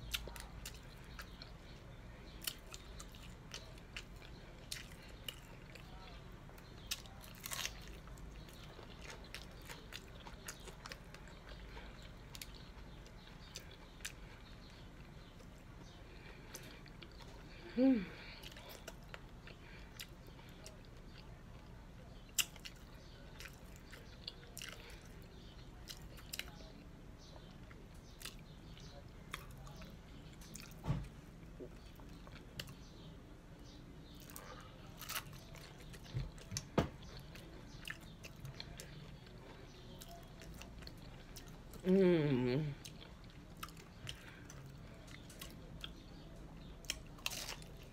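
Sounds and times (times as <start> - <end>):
chewing crunchy taco shells: 0.0 - 47.9
person humming: 17.6 - 18.3, 41.8 - 42.8.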